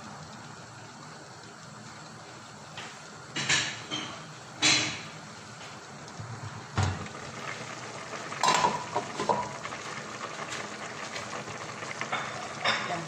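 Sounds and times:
soup bubbling: 0:00.0 - 0:13.0
pot lid clattering and ringing: 0:08.4 - 0:09.5
pot lid knock: 0:08.4 - 0:09.5.

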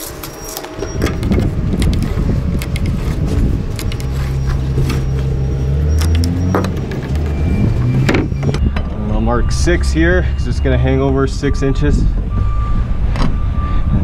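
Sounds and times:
engine running: 0:00.0 - 0:10.6.

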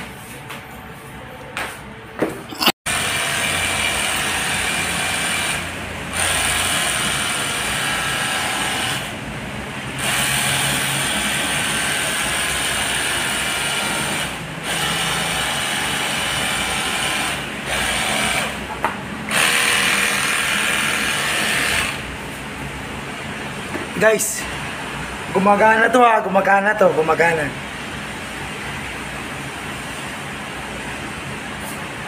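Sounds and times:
pressure washer motor whine: 0:02.9 - 0:22.1.

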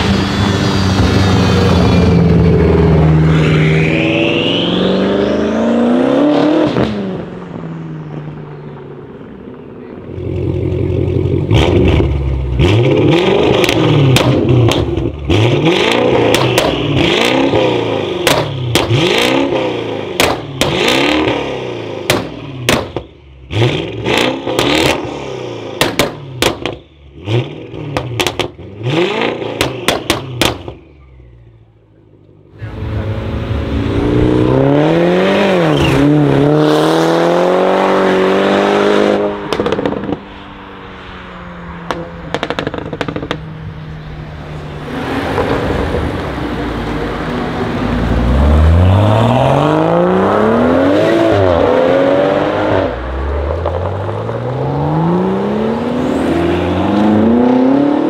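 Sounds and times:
car accelerating away: 0:00.0 - 0:22.8, 0:23.4 - 0:58.0
car engine revving: 0:00.0 - 0:58.0
exhaust pops and bangs: 0:13.6 - 0:15.1, 0:18.2 - 0:19.0, 0:20.2 - 0:20.8, 0:22.1 - 0:23.2, 0:25.8 - 0:26.9, 0:27.9 - 0:28.6, 0:29.6 - 0:30.8, 0:39.5 - 0:40.2, 0:41.8 - 0:43.5.

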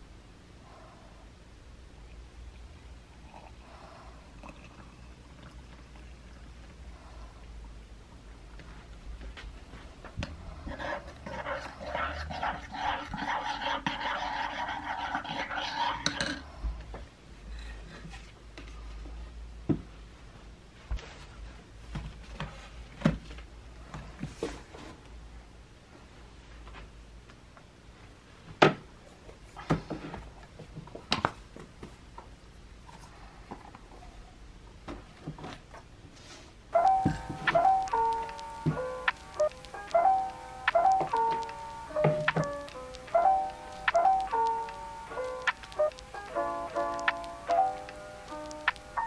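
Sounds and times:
spoon stirring in ceramic mug: 0:10.8 - 0:16.4
tablet cover clicks and taps: 0:45.4 - 0:46.1, 0:46.9 - 0:48.9.

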